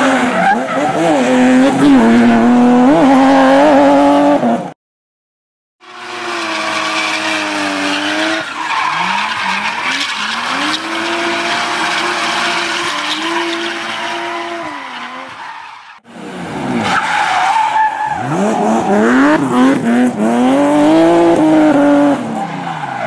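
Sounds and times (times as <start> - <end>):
tyre squeal: 6.2 - 16.0
sports car engines revving: 18.2 - 22.4.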